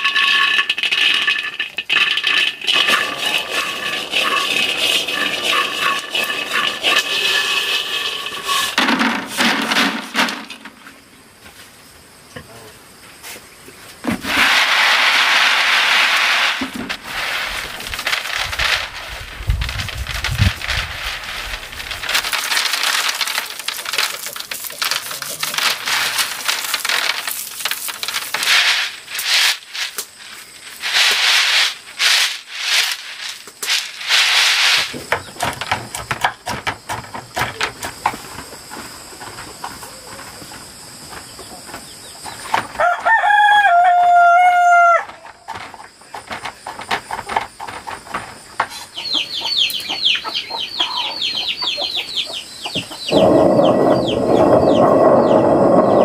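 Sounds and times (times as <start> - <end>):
rustling: 14.0 - 35.8
rooster crowing: 42.8 - 45.1.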